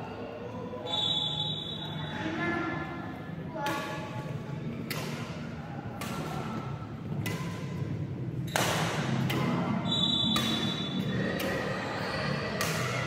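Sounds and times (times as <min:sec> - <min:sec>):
racket hitting shuttlecock: 0:03.6 - 0:13.0.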